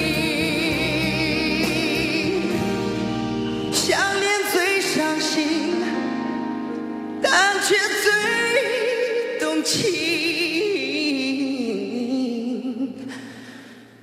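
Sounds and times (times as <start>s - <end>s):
instrumental accompaniment: 0.0s - 8.4s
man singing into microphone: 0.0s - 13.5s.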